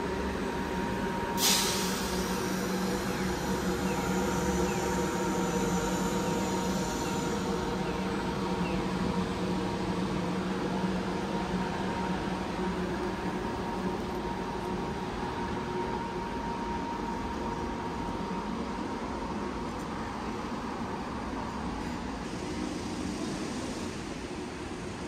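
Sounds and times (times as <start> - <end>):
air brakes hissing: 1.3 - 8.0.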